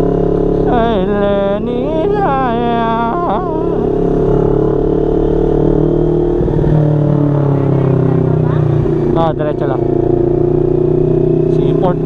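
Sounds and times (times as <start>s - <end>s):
motorcycle engine cruising: 0.0s - 12.0s
wordless wavering vocal note: 0.6s - 4.8s.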